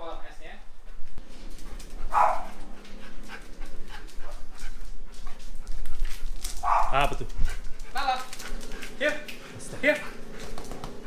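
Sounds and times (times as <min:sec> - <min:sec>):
dog barking: 0:02.1 - 0:02.6, 0:06.6 - 0:07.2.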